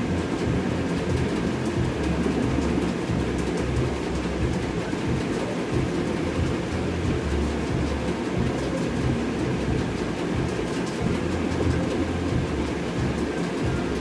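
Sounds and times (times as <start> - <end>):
deep pulsing hum: 0.0 - 14.0
low rumbling noise: 0.0 - 14.0.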